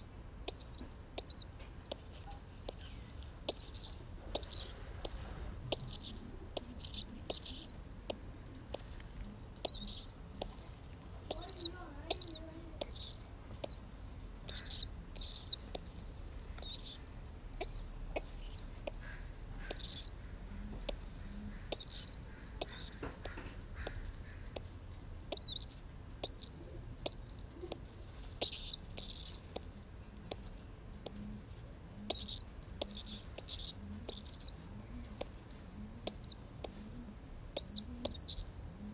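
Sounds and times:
pigeon chick peeping: 0.0s - 38.9s.

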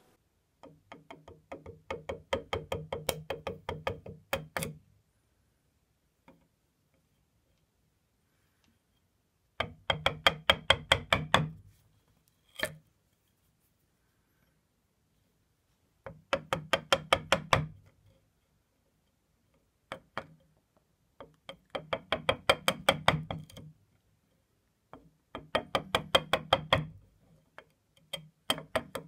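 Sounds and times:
mallet tapping chisel on wood: 0.6s - 4.8s, 9.6s - 11.7s, 16.0s - 18.0s, 21.2s - 23.7s, 24.9s - 27.0s, 27.6s - 29.0s.

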